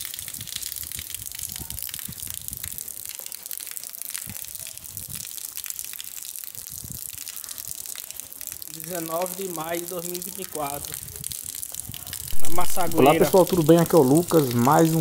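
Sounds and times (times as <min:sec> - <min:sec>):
heavy rain falling: 0:07.2 - 0:15.0.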